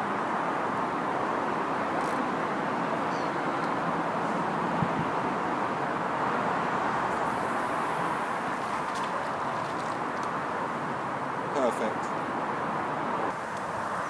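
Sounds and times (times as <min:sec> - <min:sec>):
road traffic on bridge: 0:00.0 - 0:14.0.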